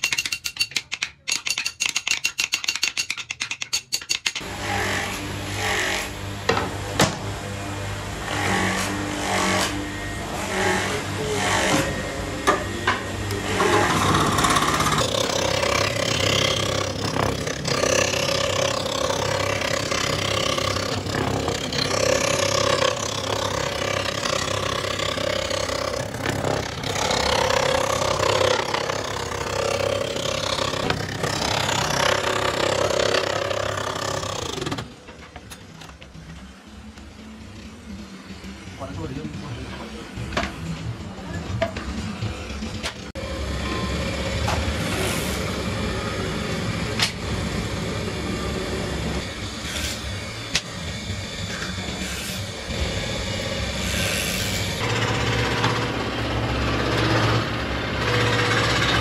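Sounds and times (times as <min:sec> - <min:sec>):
scroll saw cutting wood: 0:08.2 - 0:35.0, 0:48.7 - 0:59.0.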